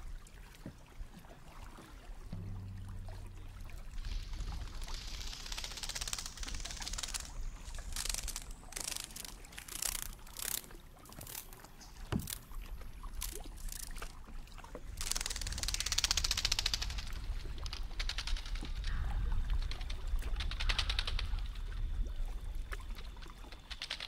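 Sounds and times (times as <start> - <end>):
water splashing against kayak: 0.0 - 24.0
fast clicks: 4.0 - 11.6, 15.0 - 18.6, 23.6 - 24.0.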